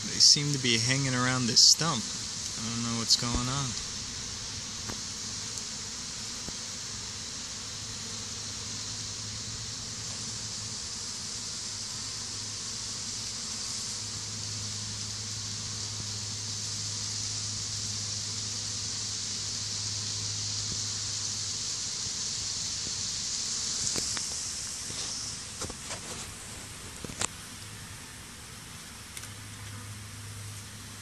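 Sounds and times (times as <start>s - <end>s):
honey bees buzzing: 0.0s - 31.0s.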